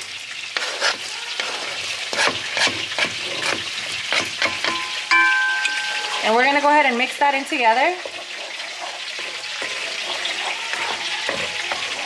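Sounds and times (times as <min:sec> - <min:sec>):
food sizzling in a pan: 0:00.0 - 0:12.0
spatula scraping and knocking board: 0:00.6 - 0:04.8, 0:08.0 - 0:12.0
steady high tone: 0:04.8 - 0:06.6.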